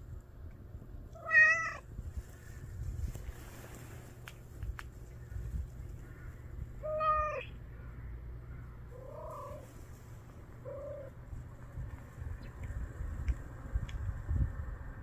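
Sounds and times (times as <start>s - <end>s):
cat meowing: 1.1s - 1.8s, 6.8s - 7.5s, 9.0s - 9.6s.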